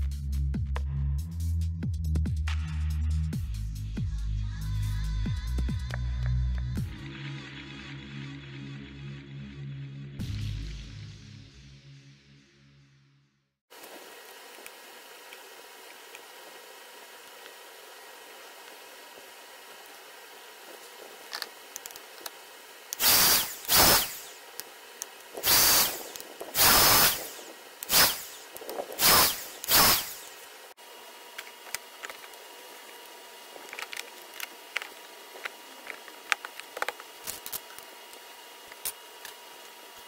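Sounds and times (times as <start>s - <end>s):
small power tool motor bursts: 16.8s - 30.8s
small parts clicking: 21.3s - 30.4s.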